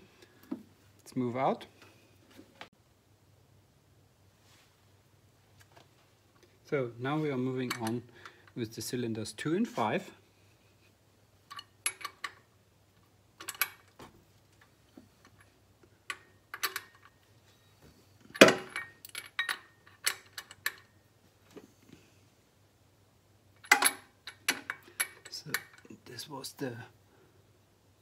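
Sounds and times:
metal tools clinking: 18.4s - 20.9s.

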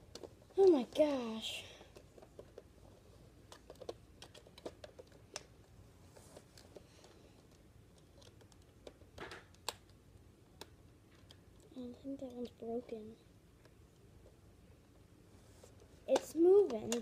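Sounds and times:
plastic toy blaster clicks and rattles: 16.1s - 17.0s.

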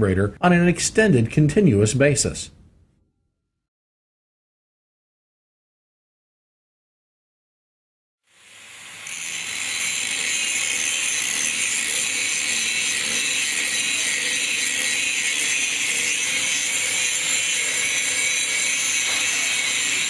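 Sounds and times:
power grinder grinding metal: 8.3s - 20.0s.

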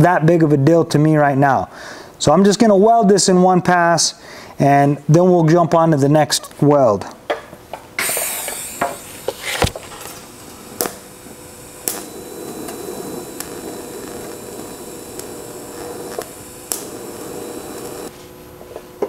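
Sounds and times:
welding arc hissing: 8.0s - 18.3s
sharp clicks: 11.8s - 18.1s.

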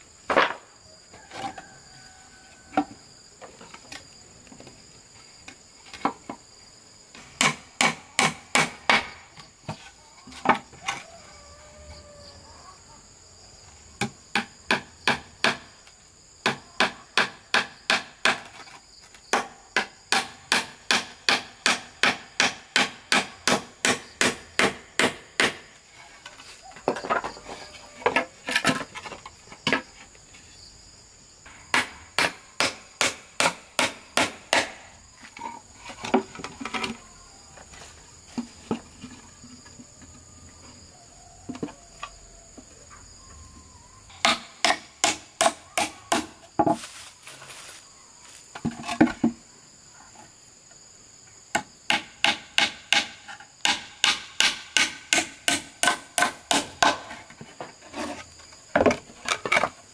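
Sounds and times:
boards being handled: 0.3s - 1.8s, 2.5s - 6.5s, 25.9s - 30.5s, 35.2s - 40.2s, 46.2s - 49.4s, 55.5s - 59.9s.

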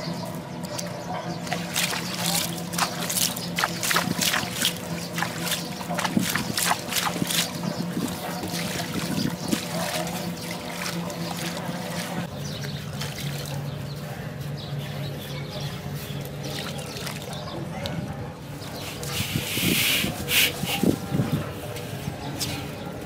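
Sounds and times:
steady low hum: 0.0s - 23.0s
water sloshing in metal basin: 1.4s - 13.8s, 16.2s - 17.6s.

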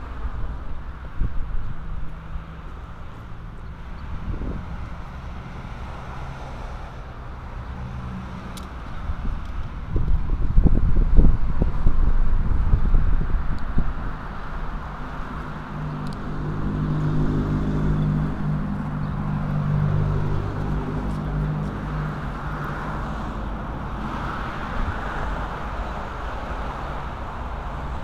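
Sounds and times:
street traffic noise: 0.0s - 28.0s
vehicle engine hum: 0.0s - 28.0s.

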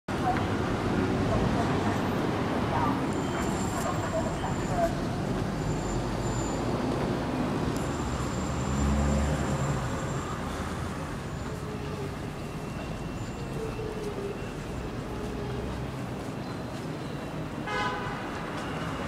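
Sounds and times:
city street traffic: 0.1s - 19.0s.

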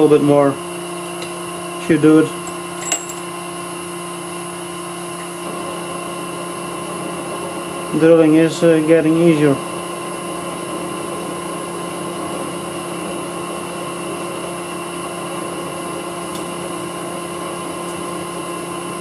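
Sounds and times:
metal lathe running: 0.9s - 9.7s.

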